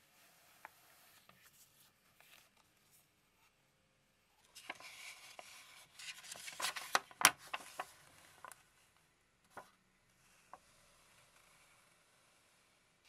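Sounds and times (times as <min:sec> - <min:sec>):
paper rustling and crackling: 0:04.5 - 0:08.6.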